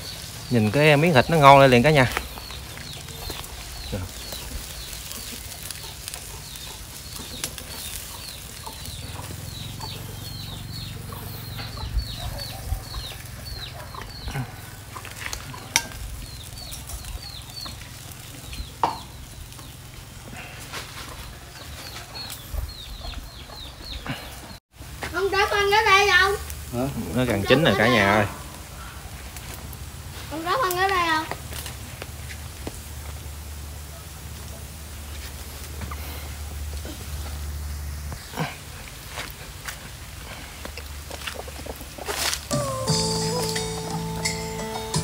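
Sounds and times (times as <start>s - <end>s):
chicks peeping: 0.0s - 24.6s, 40.3s - 45.0s.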